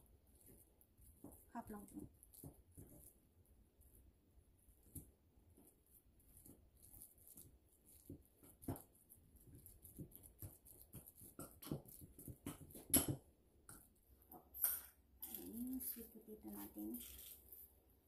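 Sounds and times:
fork mashing in glass bowl: 0:00.3 - 0:03.2, 0:04.8 - 0:13.9.

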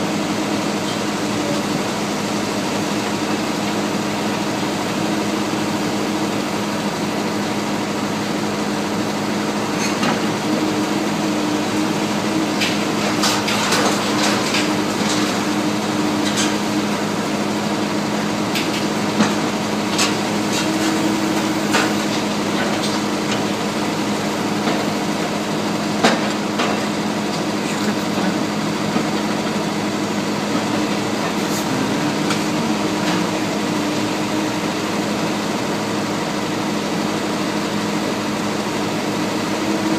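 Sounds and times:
excavators droning: 0:00.0 - 0:39.9
debris cracking and clattering: 0:12.6 - 0:15.4.

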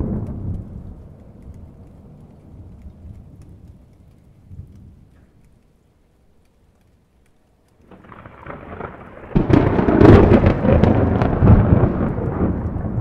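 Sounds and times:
thunder crack and rumble: 0:00.0 - 0:05.2, 0:07.9 - 0:13.0.

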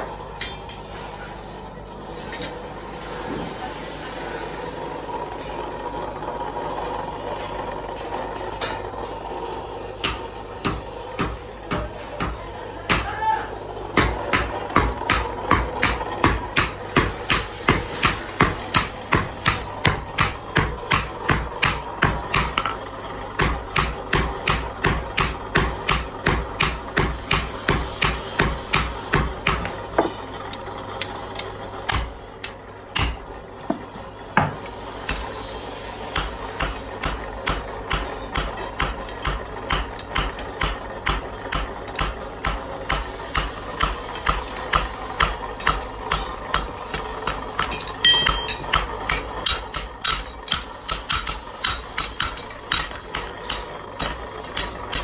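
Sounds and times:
hammer blows on anvil: 0:36.1 - 0:55.0.

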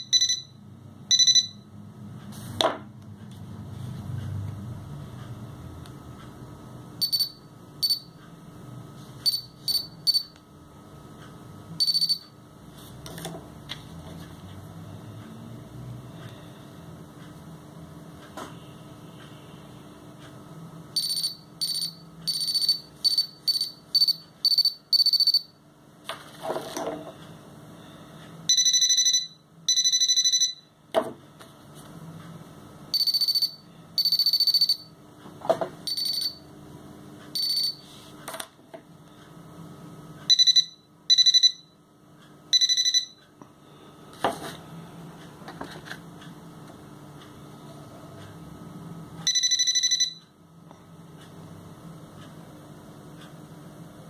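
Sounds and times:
metal detector high-pitched beeps: 0:00.0 - 0:01.6, 0:07.0 - 0:08.1, 0:09.2 - 0:10.3, 0:11.8 - 0:12.3, 0:21.0 - 0:25.5, 0:33.0 - 0:34.9, 0:35.9 - 0:36.4, 0:37.4 - 0:37.8, 0:40.3 - 0:41.7, 0:42.5 - 0:43.2.

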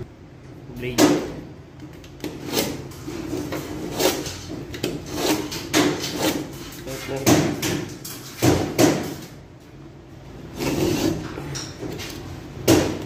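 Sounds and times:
utility knife scraping board: 0:02.2 - 0:07.2, 0:10.5 - 0:11.4.

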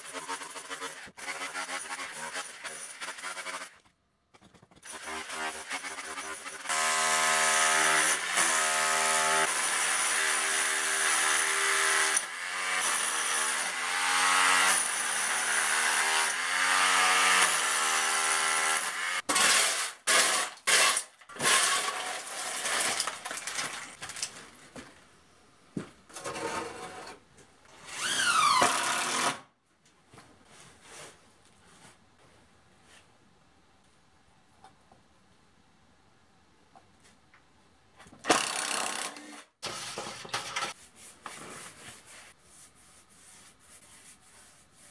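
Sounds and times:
shovel scraping concrete rubble: 0:19.3 - 0:24.4.

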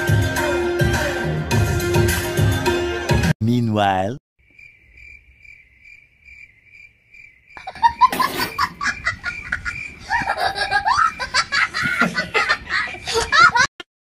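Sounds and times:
cricket chirping: 0:04.4 - 0:13.7
man laughing loudly: 0:07.6 - 0:13.8.

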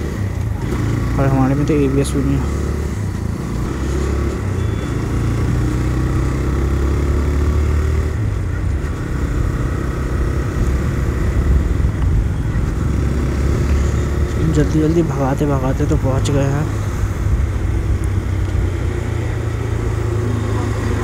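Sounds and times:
motorcycle engine riding: 0:00.0 - 0:21.0.

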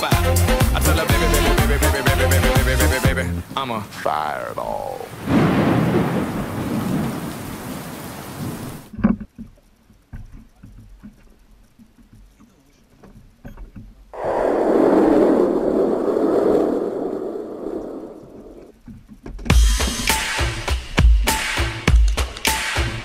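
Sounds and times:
thunder rumbling: 0:05.0 - 0:08.9, 0:14.2 - 0:18.7.

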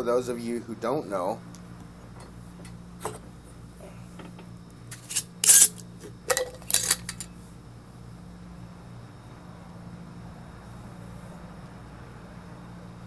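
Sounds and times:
glass jar clinks and knocks: 0:06.3 - 0:07.3.

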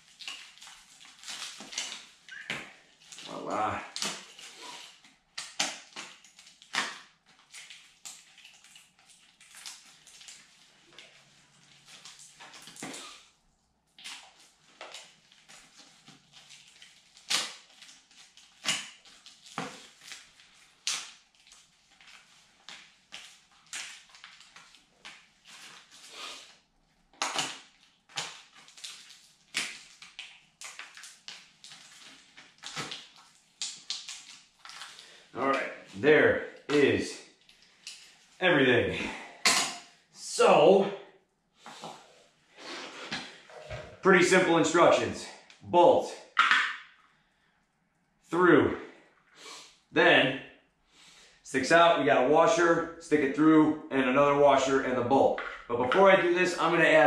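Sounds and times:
plastic bag crinkling: 0:00.0 - 0:05.0, 0:07.3 - 0:13.2, 0:14.2 - 0:36.6.

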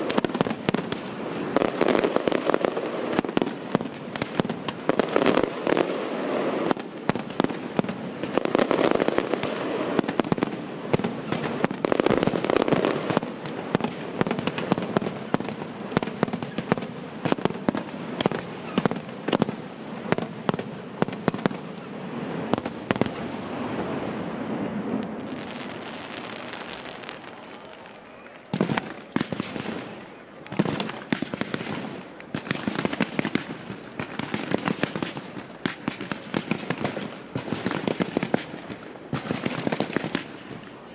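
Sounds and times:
fireworks crackling: 0:00.0 - 0:40.9.

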